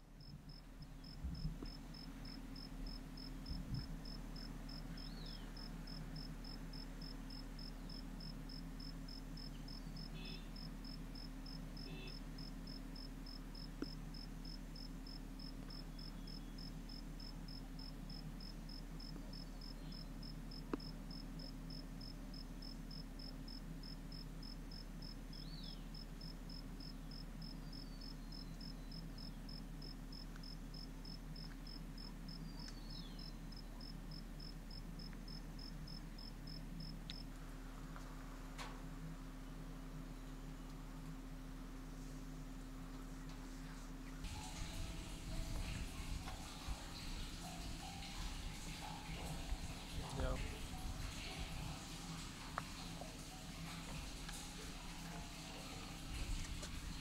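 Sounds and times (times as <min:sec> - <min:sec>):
cicadas calling: 0:00.0 - 0:37.4, 0:44.2 - 0:51.9
low steady hum: 0:00.0 - 0:57.0.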